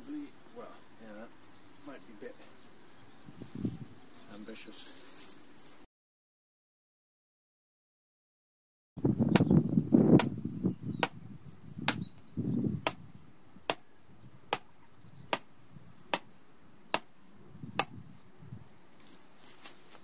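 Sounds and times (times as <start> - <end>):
low rustle of movement: 18.6 - 20.0.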